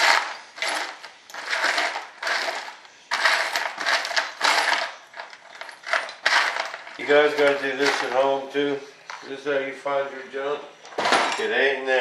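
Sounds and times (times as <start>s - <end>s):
screws and nuts rattling in tray: 0.0s - 8.4s.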